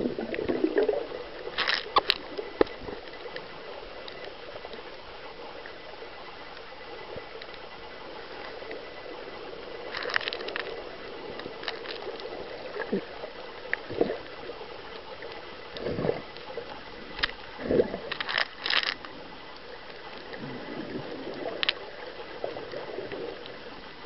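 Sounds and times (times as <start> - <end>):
water gurgling and swooshing: 0.0 - 4.7, 15.4 - 24.0.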